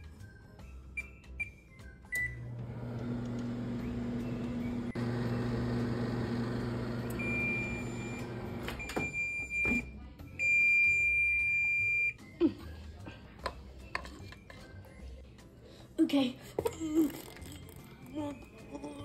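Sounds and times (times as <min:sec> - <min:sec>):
microwave oven humming: 0:02.1 - 0:09.8.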